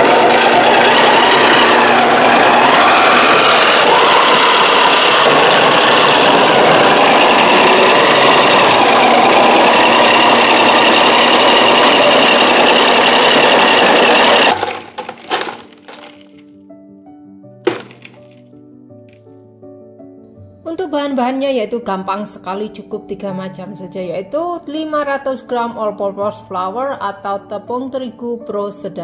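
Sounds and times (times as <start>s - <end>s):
food processor grating cheese: 0.0s - 16.3s
soft music: 16.2s - 29.0s.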